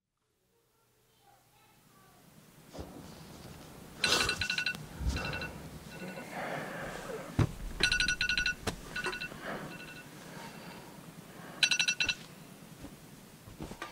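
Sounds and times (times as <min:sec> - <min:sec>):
electronic ringing tone: 0:04.0 - 0:06.3, 0:07.8 - 0:10.1, 0:11.6 - 0:12.2
dull thump: 0:07.4 - 0:08.9.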